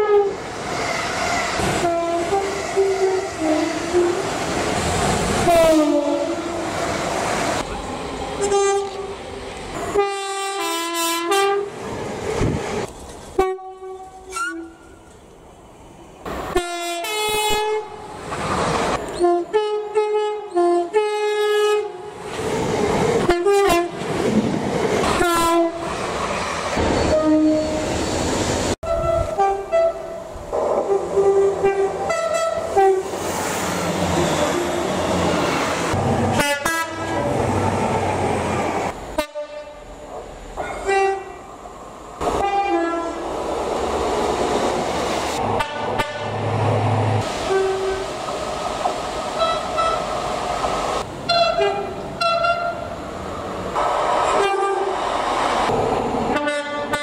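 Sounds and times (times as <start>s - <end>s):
two-tone train horn: 0.0s - 0.4s, 1.8s - 4.2s, 5.4s - 6.6s, 8.4s - 9.1s, 9.8s - 11.7s, 13.4s - 14.9s, 16.5s - 18.0s, 19.2s - 22.1s, 23.2s - 24.0s, 25.2s - 25.8s, 27.1s - 27.8s, 28.8s - 30.2s, 30.9s - 33.1s, 36.4s - 37.3s, 39.2s - 39.8s, 40.8s - 41.4s, 42.4s - 43.2s, 45.6s - 46.3s, 47.5s - 48.0s, 49.4s - 50.0s, 51.3s - 52.8s, 56.3s - 57.0s
passing train rumble and wheel clatter: 0.0s - 57.0s.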